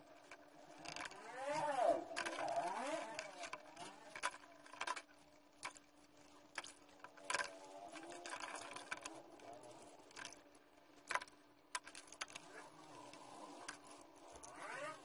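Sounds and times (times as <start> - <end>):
small parts clicking: 0.0 - 15.0.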